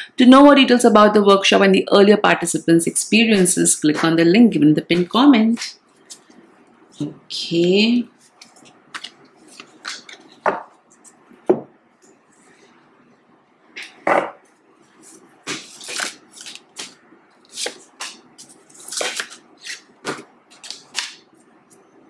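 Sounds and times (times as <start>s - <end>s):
cards being shuffled: 8.2s - 10.4s, 15.0s - 21.8s.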